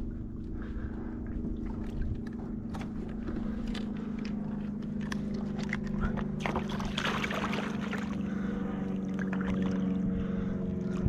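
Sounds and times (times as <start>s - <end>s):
steady low hum: 0.0s - 11.0s
fish splashing in water: 5.2s - 9.9s.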